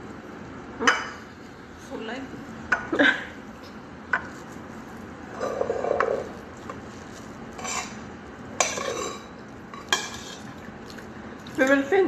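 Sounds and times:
dishes clinking: 8.6s - 10.5s.

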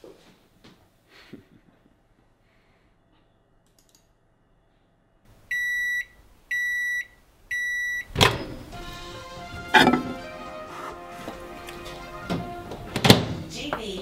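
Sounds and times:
electronic alarm beeping: 5.5s - 8.1s.

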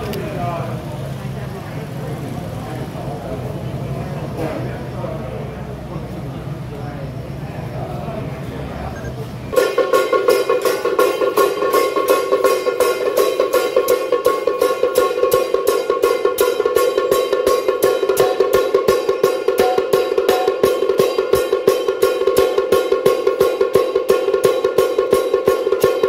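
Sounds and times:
continuous metallic ringing: 9.0s - 26.0s
gongs and cymbals struck: 9.5s - 26.0s.

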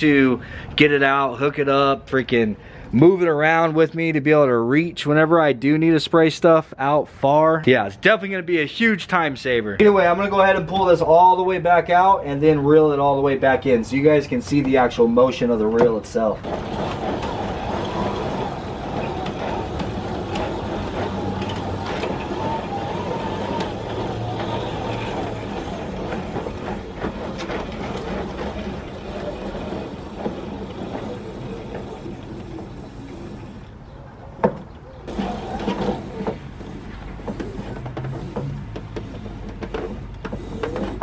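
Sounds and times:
hose reel rattling rumble: 13.5s - 34.0s, 35.1s - 41.0s.

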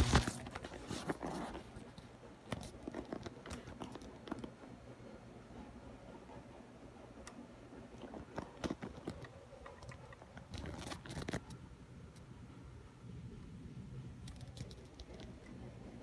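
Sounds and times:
rustling: 0.0s - 4.6s
low steady hum: 0.0s - 16.0s.

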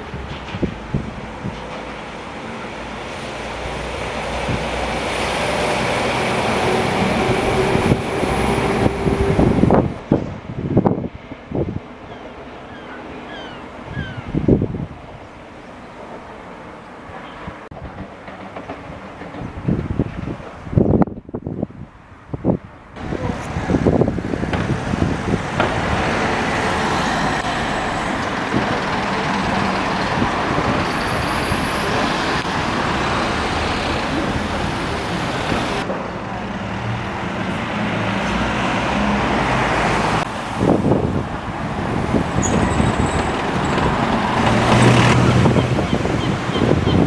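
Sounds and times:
tyre and traffic noise: 0.0s - 47.0s
heavy diesel engine running close: 23.0s - 45.9s.

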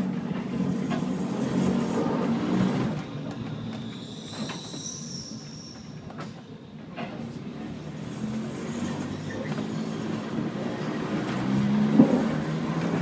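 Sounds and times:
high-pitched squeal: 2.8s - 6.1s
tram motor hum: 6.0s - 13.0s.

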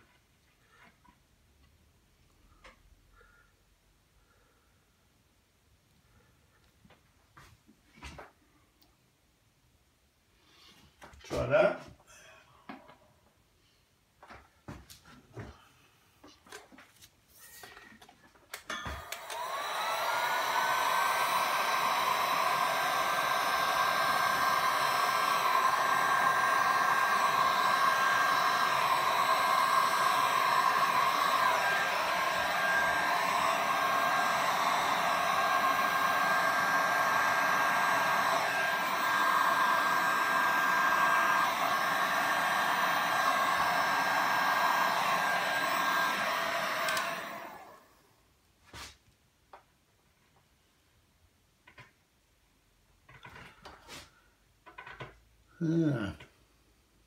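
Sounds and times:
heat gun fan whirring: 18.5s - 47.9s.

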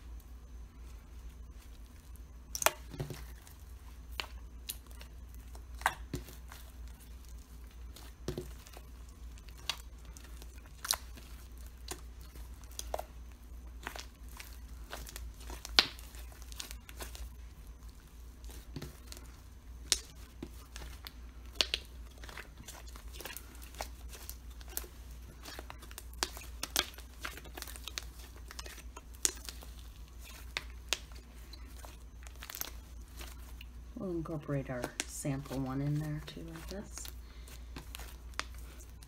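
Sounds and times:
slime squeezed by hand: 13.8s - 33.8s.

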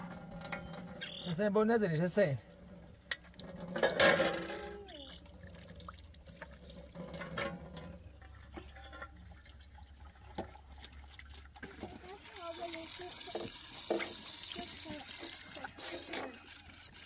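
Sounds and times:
tap water running into sink: 5.2s - 17.0s.

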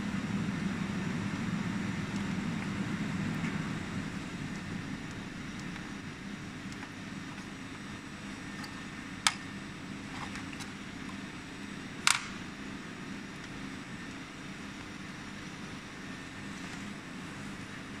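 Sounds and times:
low machinery hum: 0.0s - 18.0s
sharp clicks: 12.0s - 12.4s.

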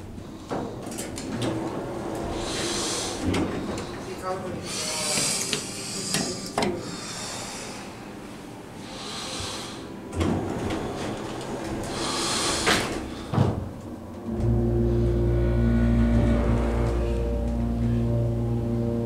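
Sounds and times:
elevator doors sliding shut: 0.0s - 4.4s, 10.0s - 19.0s.

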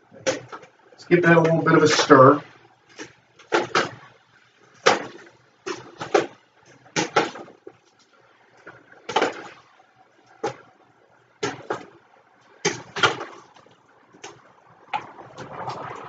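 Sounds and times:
wet sloshing stirring: 11.5s - 16.0s.

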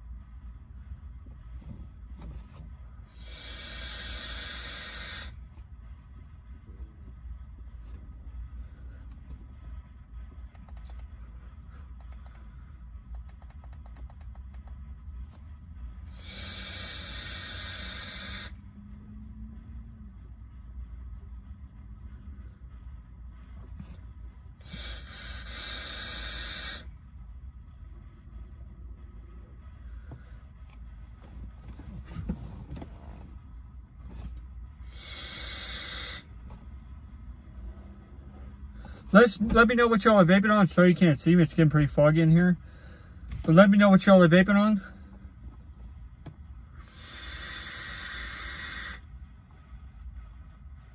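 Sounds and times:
loud hiss of air: 0.0s - 10.5s, 15.0s - 19.2s, 19.8s - 31.2s, 31.8s - 41.4s, 46.0s - 50.9s
low steady rumble: 0.0s - 50.9s
steady low hum: 0.0s - 50.9s
airy hiss of vape inhale: 3.0s - 5.5s, 16.0s - 18.6s, 24.5s - 26.9s, 34.8s - 36.4s, 46.6s - 50.9s.

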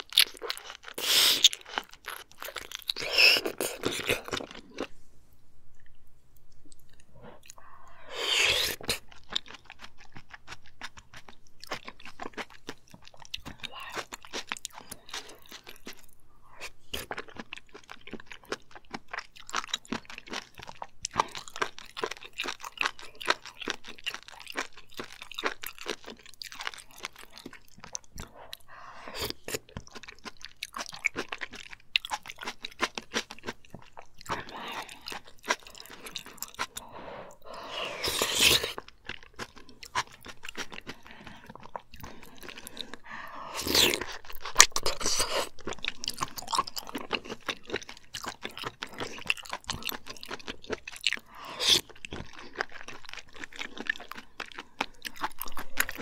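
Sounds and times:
chewing and wet mouth sounds: 0.0s - 5.0s, 5.7s - 56.0s.

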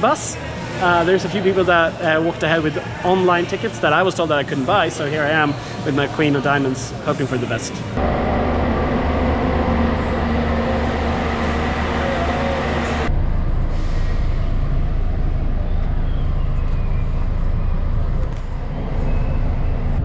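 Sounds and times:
bus engine idling: 7.9s - 20.0s
engine rumble inside bus cabin: 8.0s - 20.0s.

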